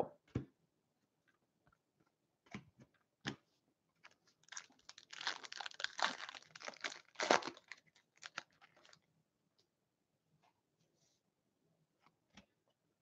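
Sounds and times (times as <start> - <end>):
foil wrapper crinkling and tearing: 4.0 - 9.0.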